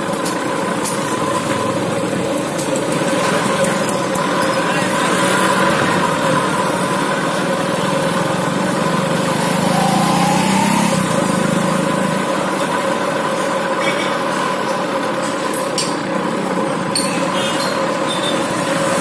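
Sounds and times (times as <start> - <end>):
street traffic: 0.0 - 19.0
vehicle engine running: 0.5 - 13.8.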